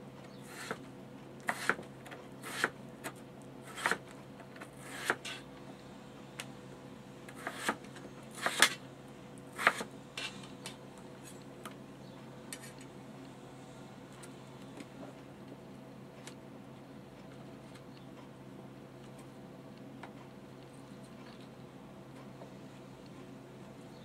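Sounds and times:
knife chopping on cutting board: 0.5 - 0.8, 1.5 - 4.0, 4.6 - 5.4, 7.3 - 8.8, 9.5 - 9.9.

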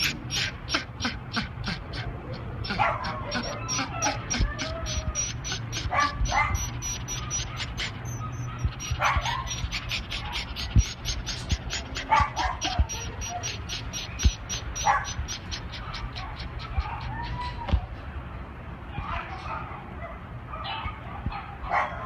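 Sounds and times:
dog panting fast: 0.0 - 17.6
dog whining: 0.0 - 17.8.

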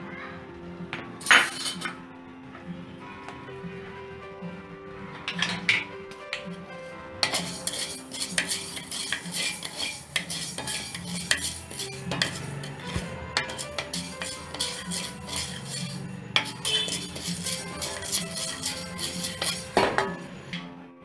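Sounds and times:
utensil scraping metal pan: 1.2 - 2.0, 7.2 - 20.6.

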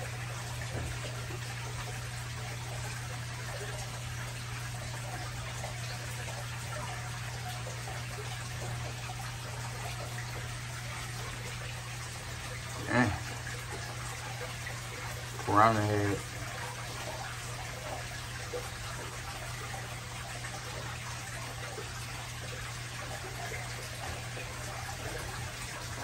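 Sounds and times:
aquarium water trickling: 0.0 - 26.0
constant low hum: 0.0 - 26.0.

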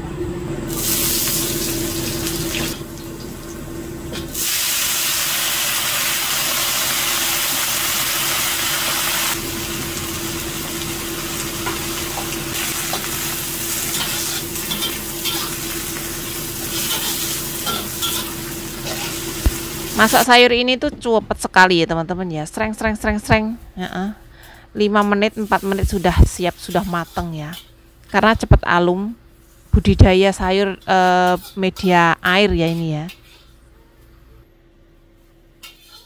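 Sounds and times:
steady low hum: 0.0 - 4.3
food sizzling in hot oil: 0.7 - 3.6, 4.3 - 20.3, 25.3 - 27.3
metal spatula scraping wok: 13.8 - 15.7, 16.6 - 19.3, 26.6 - 27.7, 30.7 - 33.6, 35.6 - 36.0.

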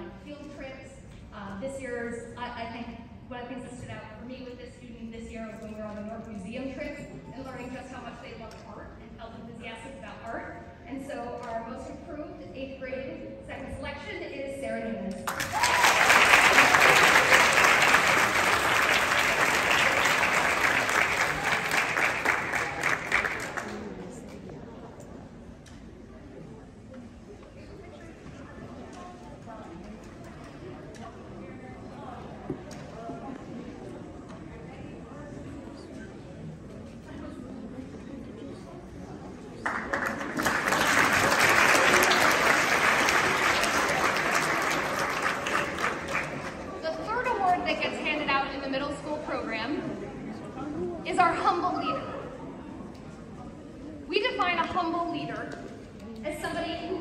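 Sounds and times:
audience applauding: 15.3 - 24.1, 39.6 - 46.8.

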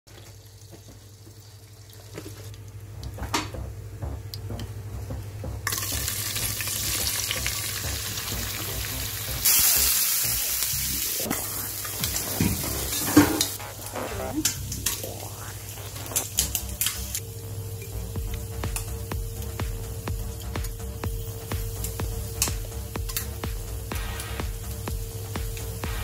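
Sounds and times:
onions sizzling in oil: 5.7 - 20.5, 21.1 - 26.0
spices crackling in hot oil: 5.7 - 26.0.

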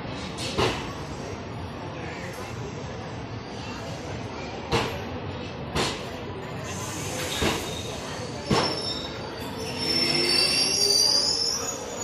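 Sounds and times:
high-pitched wheel squeal: 7.7 - 12.0.

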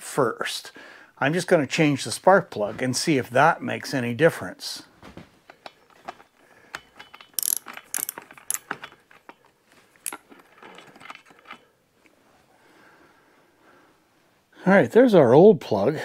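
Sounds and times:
metal wrench clicking: 6.7 - 8.9, 10.0 - 10.2.

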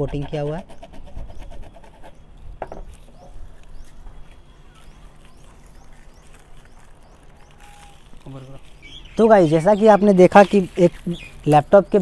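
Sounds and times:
metal tool scratching sheet: 0.0 - 2.2.

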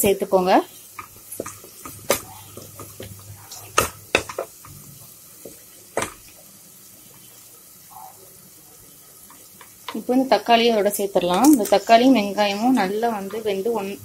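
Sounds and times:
faint oil sizzle: 0.0 - 14.0
spoon knocking on pressure cooker: 1.0 - 4.7.

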